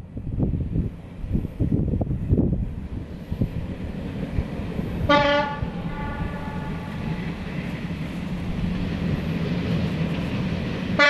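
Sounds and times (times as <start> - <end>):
diesel train rumbling: 0.0 - 11.0
train horn blast: 5.1 - 7.0.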